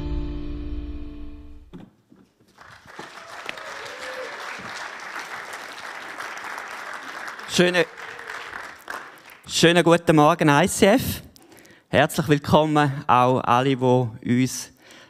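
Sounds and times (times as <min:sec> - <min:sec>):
congregation applauding: 0:02.5 - 0:09.7.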